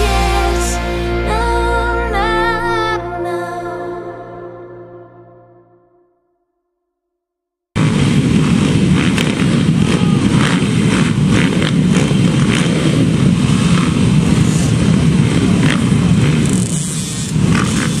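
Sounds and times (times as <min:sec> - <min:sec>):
dirt bike engines: 0:07.8 - 0:18.0.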